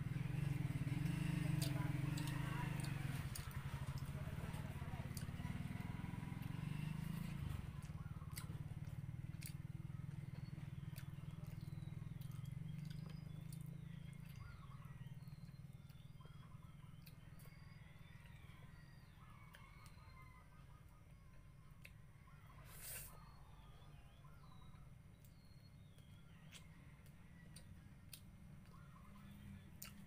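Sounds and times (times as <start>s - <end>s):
low mechanical hum: 0.0s - 30.0s
faint clicks of eating: 0.5s - 5.4s, 7.2s - 20.2s, 21.2s - 22.2s, 25.1s - 30.0s.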